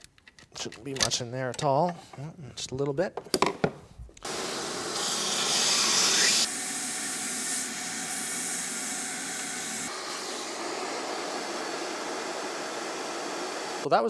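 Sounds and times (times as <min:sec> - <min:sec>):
shop vacuum sucking: 0:04.2 - 0:13.9.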